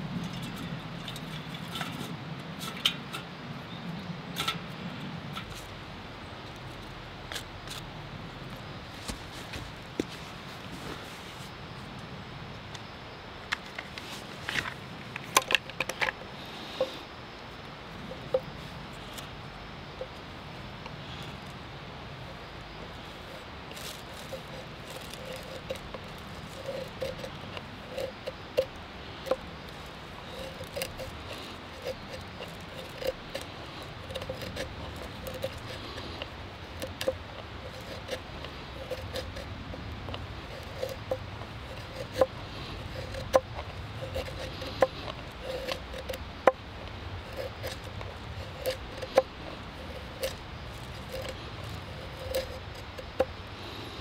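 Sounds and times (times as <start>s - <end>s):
knife scraping wood: 22.4s - 54.0s.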